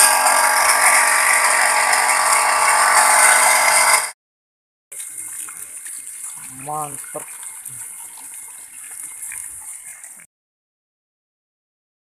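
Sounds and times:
water spraying: 0:00.0 - 0:04.1, 0:04.9 - 0:10.3
electric water pump grinding: 0:00.0 - 0:04.2.

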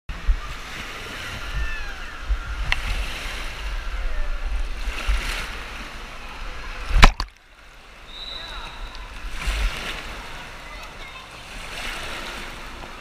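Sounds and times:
water sloshing and splashing: 0:00.2 - 0:13.0
waves thumping camera housing: 0:02.3 - 0:03.0, 0:06.8 - 0:07.4.

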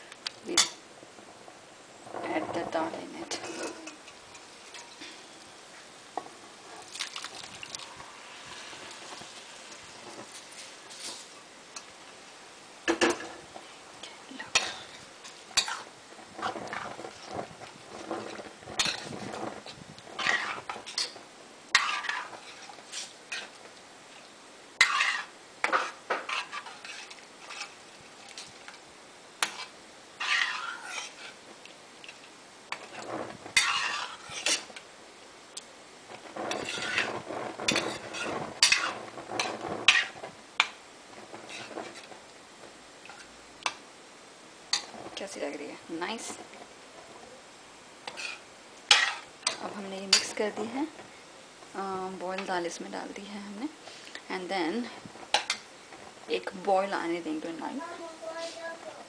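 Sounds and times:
metal spoon scraping a pan: 0:00.5 - 0:00.8, 0:02.2 - 0:05.4, 0:07.8 - 0:11.9, 0:14.4 - 0:28.8, 0:29.4 - 0:31.4, 0:32.0 - 0:34.8, 0:36.2 - 0:42.2, 0:44.7 - 0:45.4, 0:48.0 - 0:51.0, 0:53.9 - 0:57.7
food poured into gravy: 0:06.8 - 0:11.0.

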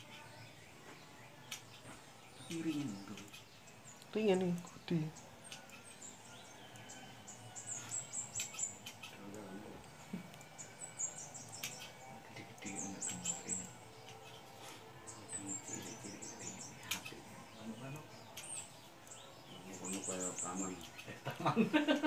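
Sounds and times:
small birds chirping: 0:00.0 - 0:22.0
sharp clicks: 0:11.5 - 0:11.9.

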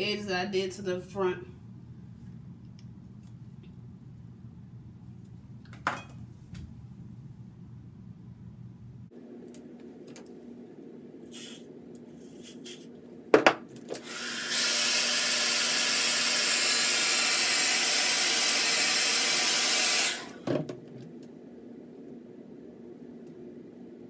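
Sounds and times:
hairspray hisses: 0:11.3 - 0:12.9
hair dryer blowing: 0:14.0 - 0:20.4.

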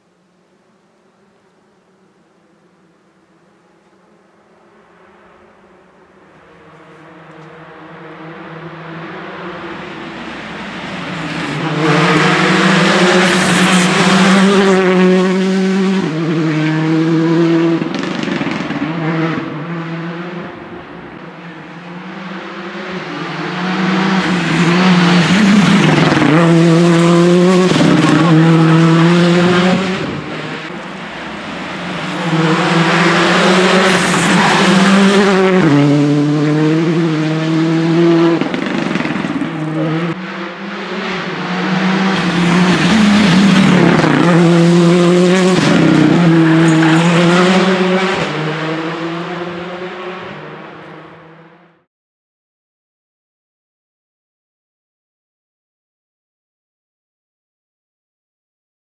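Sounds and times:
rally car engine driven hard: 0:06.4 - 0:51.8.

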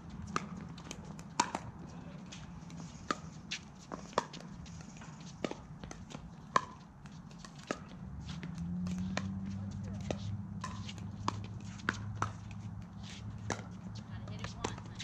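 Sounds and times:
paddles hitting plastic ball: 0:00.2 - 0:01.7.

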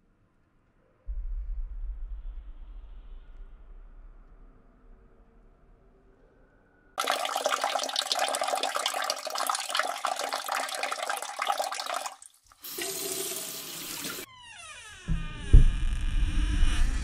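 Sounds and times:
urine splashing into toilet water: 0:07.0 - 0:14.3.

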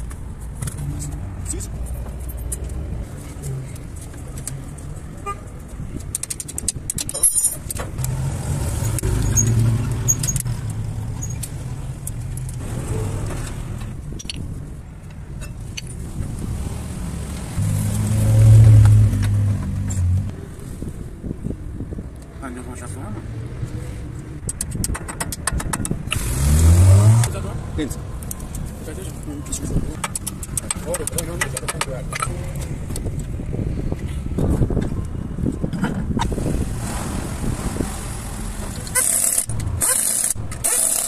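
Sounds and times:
vehicle engine humming: 0:07.6 - 0:22.3, 0:22.9 - 0:41.0.

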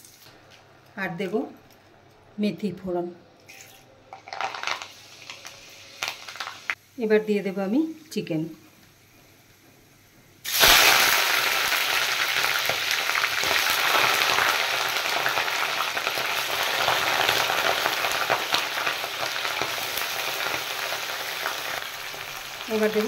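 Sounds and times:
chicken frying in hot oil: 0:04.2 - 0:06.8, 0:10.4 - 0:23.0.

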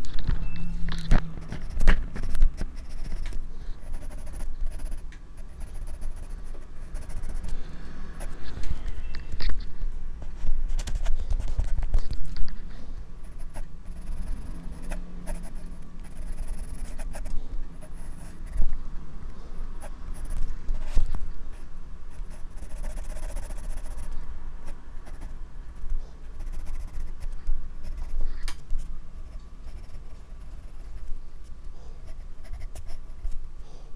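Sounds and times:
pencil scratching on paper: 0:01.4 - 0:09.1, 0:13.2 - 0:18.6, 0:19.8 - 0:21.1, 0:22.1 - 0:24.2, 0:25.0 - 0:25.4, 0:26.3 - 0:28.5, 0:29.2 - 0:31.1, 0:31.9 - 0:33.3.

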